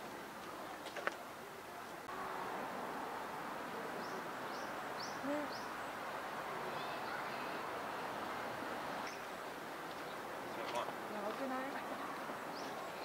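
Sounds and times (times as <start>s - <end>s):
steady background noise: 0.0s - 13.0s
small bird chirping: 9.0s - 9.3s.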